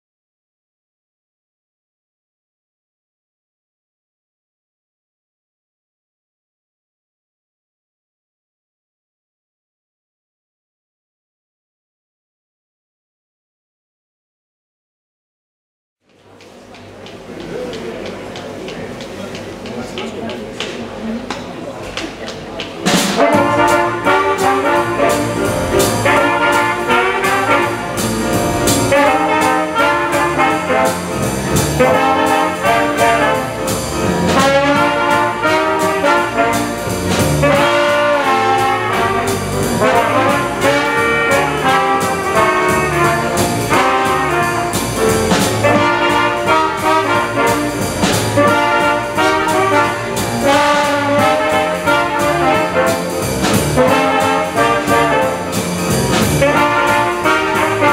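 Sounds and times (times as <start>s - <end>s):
drums: 16.0s - 57.9s
piano: 21.5s - 57.9s
trombone: 23.0s - 57.9s
trumpet: 23.0s - 57.9s.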